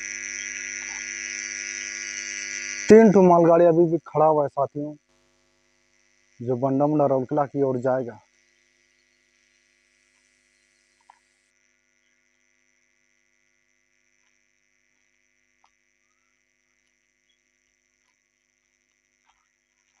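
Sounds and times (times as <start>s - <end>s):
faint steady hum: 0.0s - 5.0s, 6.2s - 8.2s.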